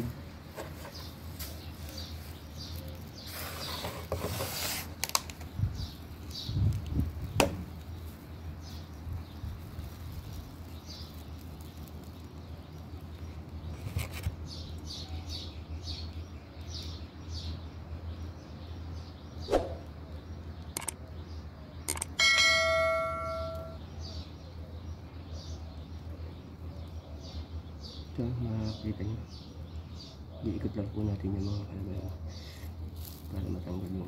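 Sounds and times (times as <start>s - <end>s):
rustle of handling: 0.0s - 14.4s, 32.0s - 34.0s
low hum: 21.9s - 23.9s
faint high chirps: 21.9s - 24.2s.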